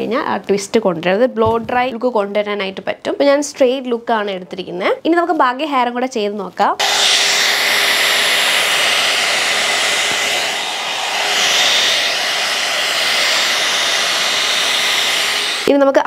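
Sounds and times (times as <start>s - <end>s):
hot-air brush blowing with whine: 6.8s - 16.0s.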